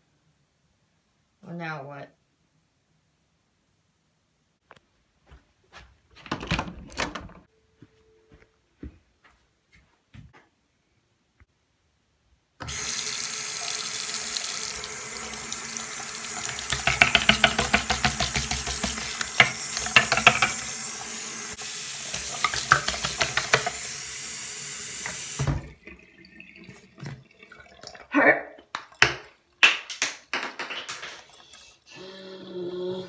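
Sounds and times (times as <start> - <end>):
tap running into sink: 16.2 - 20.8, 22.1 - 23.9, 25.0 - 25.8.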